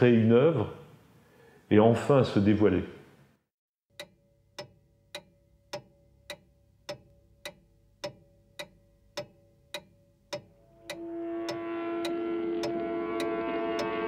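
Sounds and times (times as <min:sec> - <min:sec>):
steady ticking: 0:03.9 - 0:14.0
faint steady tone: 0:04.0 - 0:14.0.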